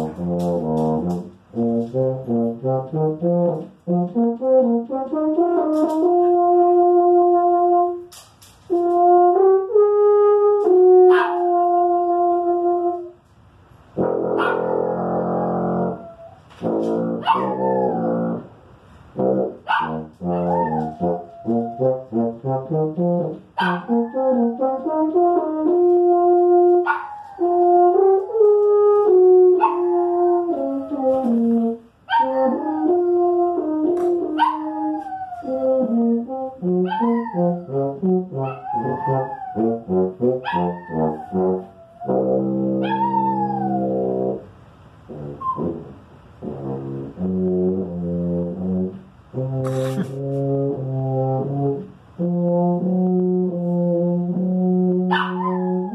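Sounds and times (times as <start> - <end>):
tuba playing slow melody: 0.0 - 55.9
small dog howling: 15.7 - 16.4, 17.2 - 18.2, 20.3 - 22.1, 23.6 - 24.8, 26.8 - 27.8, 29.6 - 31.2, 32.1 - 33.1, 34.3 - 36.1, 36.8 - 39.8, 40.4 - 44.0, 55.1 - 55.9.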